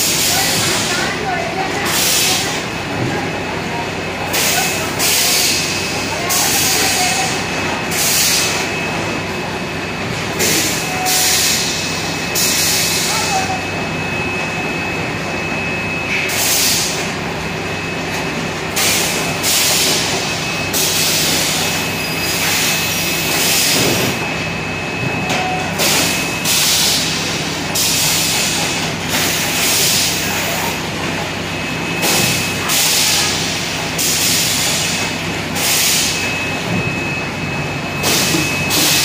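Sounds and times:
machinery hum: 0.0 - 39.0.

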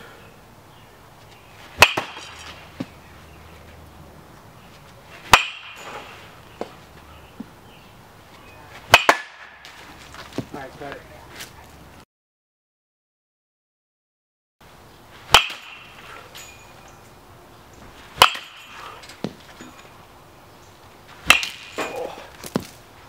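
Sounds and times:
metal bat hitting balls: 1.7 - 3.1, 5.2 - 6.9, 8.8 - 9.8, 15.3 - 17.0, 18.1 - 20.0, 21.2 - 22.8.

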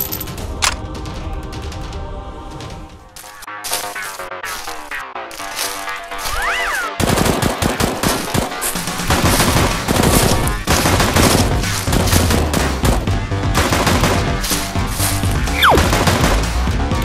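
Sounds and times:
background music: 0.0 - 17.0
automatic gunfire: 7.0 - 8.5
rising and falling tone: 15.5 - 15.8.

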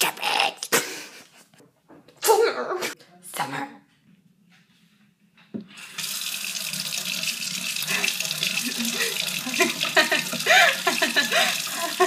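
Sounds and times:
water running into a metal sink: 5.7 - 12.0.

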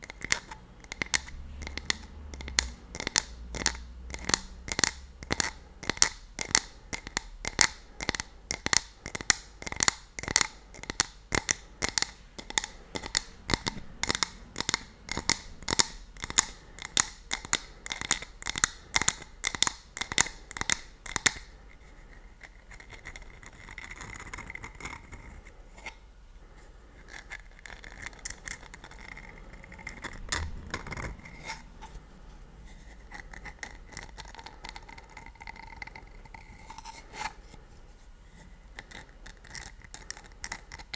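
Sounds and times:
scratching and rubbing on a cup: 0.0 - 6.0, 10.7 - 26.0, 27.0 - 40.9
fingernails tapping on a cup: 0.0 - 21.4.

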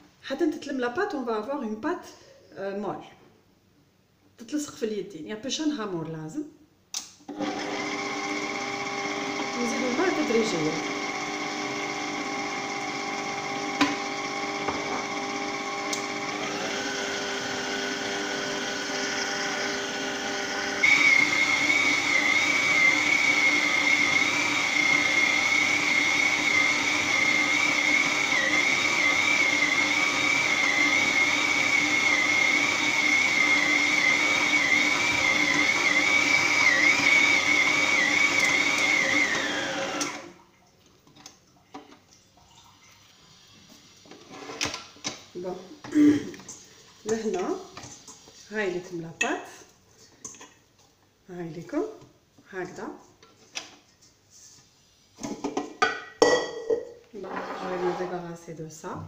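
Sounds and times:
stand mixer motor whine: 7.3 - 40.3.

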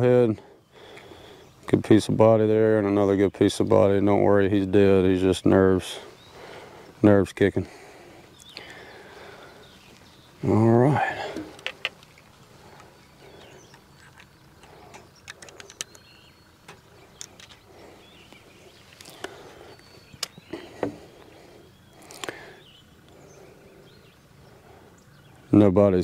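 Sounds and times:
faint bird calls: 0.0 - 26.0
fishing tackle clicks and taps: 11.4 - 12.9.

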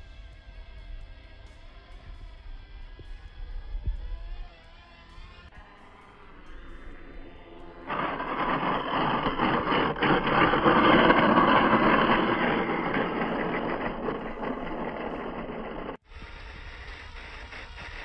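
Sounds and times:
foam scraping on concrete: 7.8 - 18.0
small electric motors running: 7.8 - 18.0.

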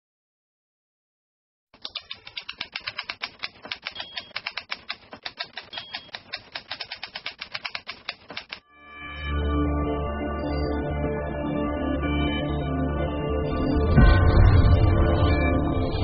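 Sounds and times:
typewriter keys striking: 1.8 - 8.6.

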